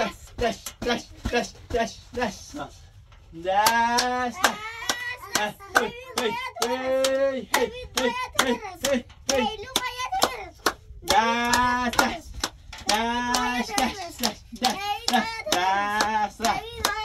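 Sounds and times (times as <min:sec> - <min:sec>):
hands clapping a steady beat: 0:03.5 - 0:17.0.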